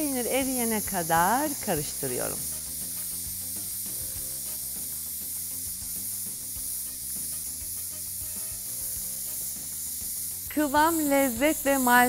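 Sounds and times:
sauce hissing in frying pan: 0.0s - 12.0s.

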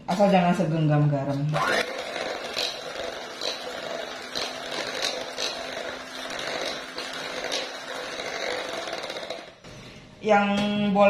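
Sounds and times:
electric hand mixer running: 1.5s - 9.7s.

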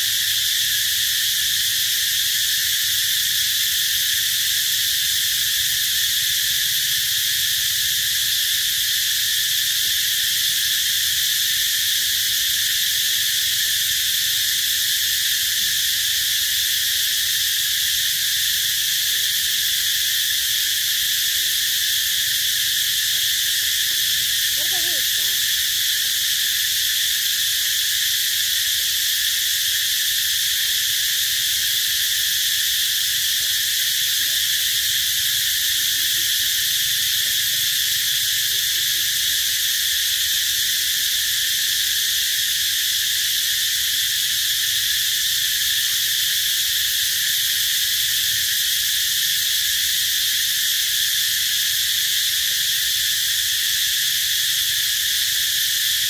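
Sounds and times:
insect chorus: 0.0s - 56.0s.

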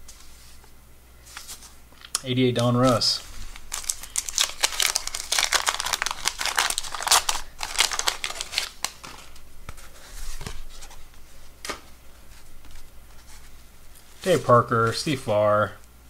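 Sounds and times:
wax paper wrapper crinkling: 1.3s - 9.4s
handling card stack: 1.3s - 11.9s.

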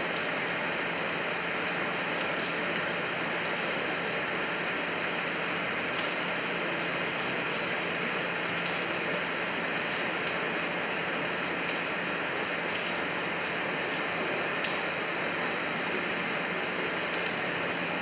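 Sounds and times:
rain pattering on surfaces: 0.0s - 18.0s
water drips ticking: 5.1s - 6.2s, 10.2s - 15.5s.

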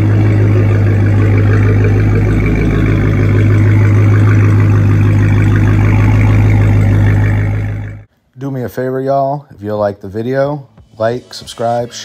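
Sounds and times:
car engine idling: 0.0s - 8.1s.

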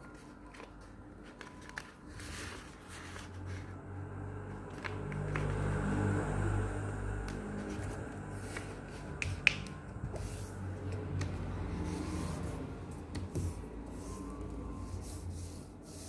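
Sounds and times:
paper rustling: 0.0s - 3.8s, 7.5s - 12.6s.

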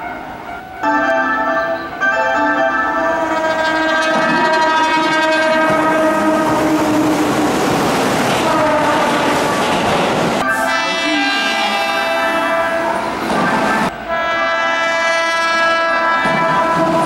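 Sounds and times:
train rushing and clattering past: 0.0s - 14.1s, 16.0s - 17.0s
train horn blast: 3.0s - 7.6s, 8.4s - 17.0s.

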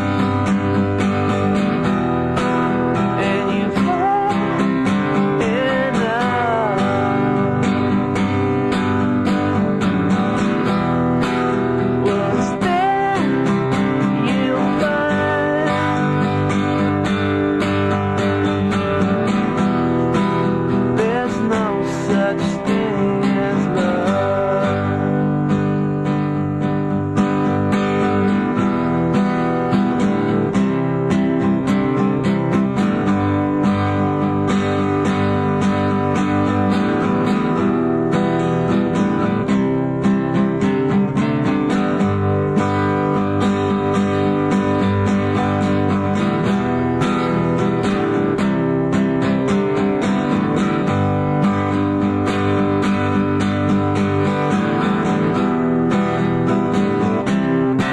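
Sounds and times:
acoustic guitar strumming chords: 0.0s - 57.9s.

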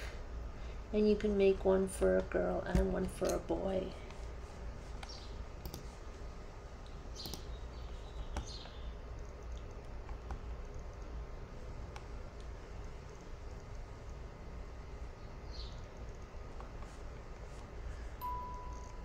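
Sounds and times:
low steady hum: 0.0s - 19.0s
computer mouse clicks: 5.0s - 5.9s, 6.8s - 11.2s, 16.0s - 17.0s.

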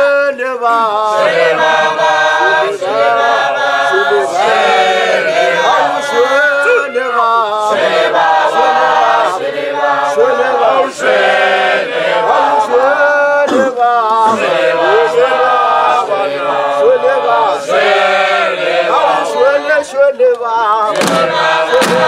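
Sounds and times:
group chanting: 0.7s - 20.0s, 20.8s - 22.0s.

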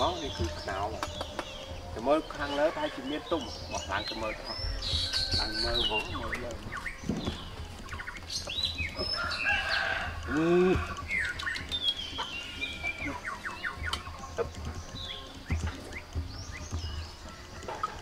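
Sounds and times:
small birds chirping: 0.0s - 18.0s
chicken calling: 9.2s - 14.6s.

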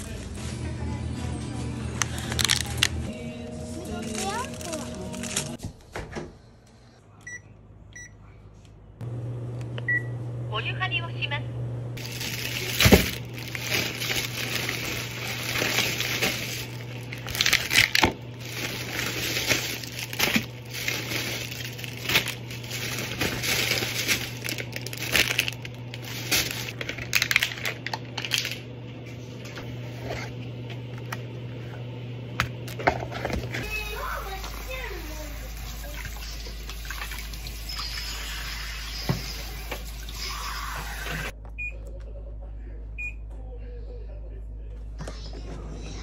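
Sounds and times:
plastic bag rustling: 3.7s - 5.6s, 12.0s - 28.6s.

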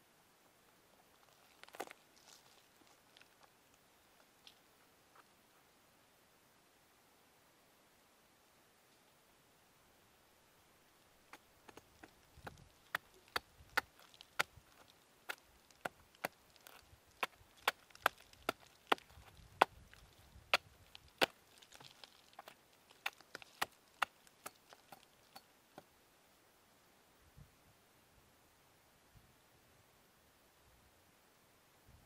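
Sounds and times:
wood being chipped: 11.3s - 25.5s.

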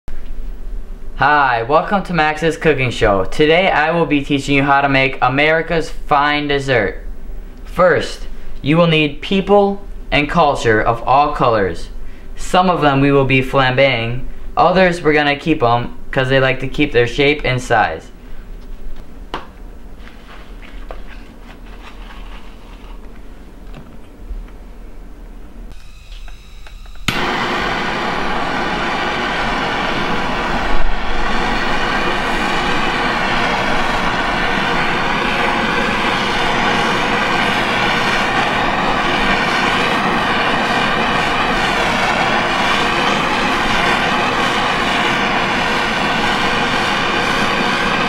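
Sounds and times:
low steady hum: 0.1s - 48.0s
butane torch hissing: 25.7s - 48.0s.

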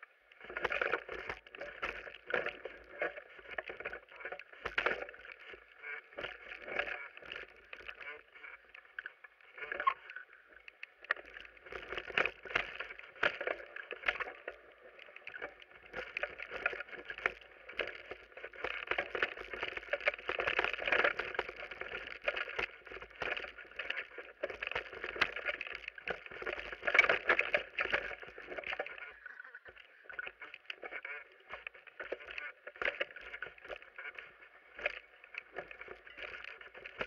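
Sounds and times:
wind: 0.0s - 37.0s
bike tyres rolling on dirt: 11.0s - 37.0s.

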